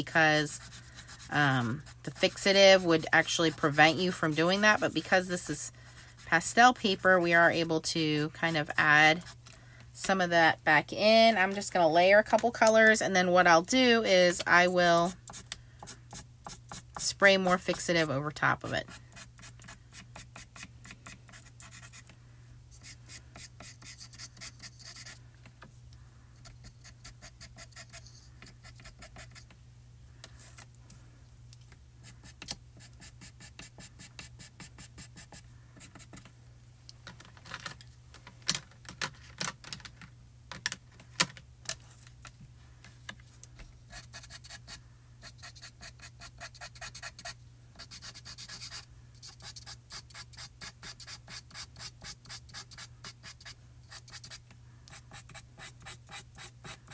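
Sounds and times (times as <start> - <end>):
pencil scratching on paper: 0.0 - 7.7, 16.1 - 22.0, 22.7 - 25.2, 26.4 - 29.4, 43.9 - 56.9.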